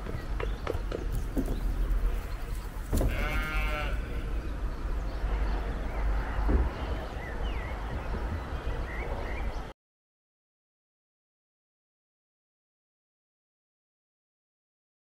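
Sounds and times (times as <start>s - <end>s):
wind buffeting microphone: 0.0s - 9.7s
animal bleat: 2.9s - 4.4s.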